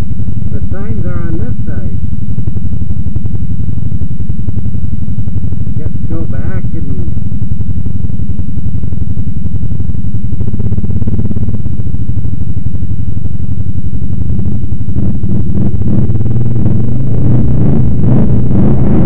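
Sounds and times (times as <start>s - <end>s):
quad bike engine idling: 0.0s - 19.0s.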